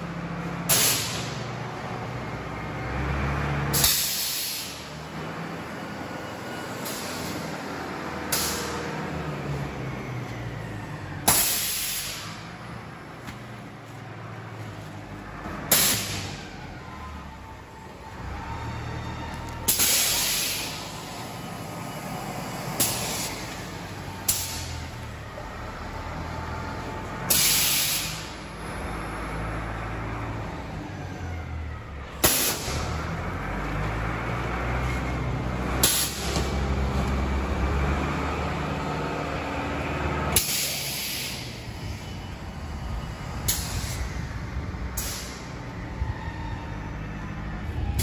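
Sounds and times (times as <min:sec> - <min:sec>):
compressed air hisses: 0:03.8 - 0:04.8.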